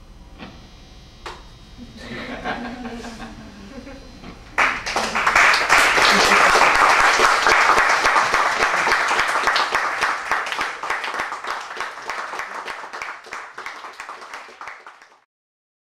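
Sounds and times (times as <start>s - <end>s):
audience applauding: 4.6s - 15.3s.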